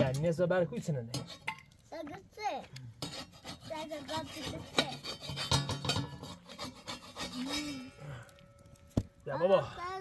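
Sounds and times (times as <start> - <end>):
rough rubbing and scraping: 3.0 - 8.0.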